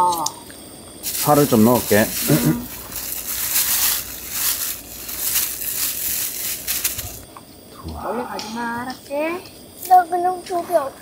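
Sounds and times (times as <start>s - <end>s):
food sizzling in a hot pan: 1.0s - 7.3s.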